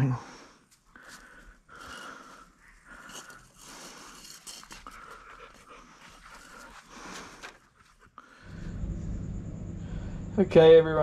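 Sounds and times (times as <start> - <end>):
rasping panting breaths: 0.2 - 8.8.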